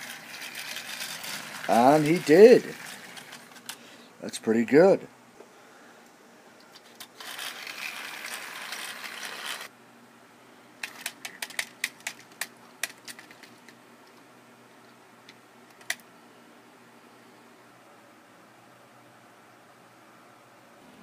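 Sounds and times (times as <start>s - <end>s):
plastic toy clicks and clatters: 0.0s - 3.8s, 6.8s - 9.7s, 10.8s - 13.8s, 15.7s - 16.0s.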